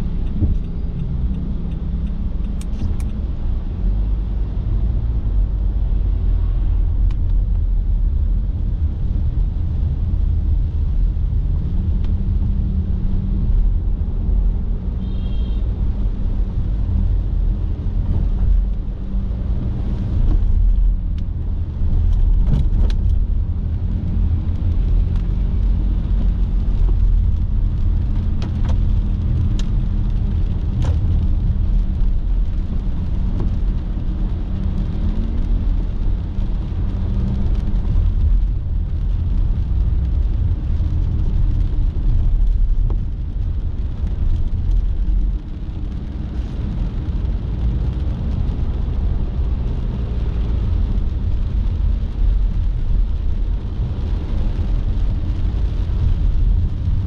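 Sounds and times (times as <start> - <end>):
car engine and road rumble: 0.0 - 57.0.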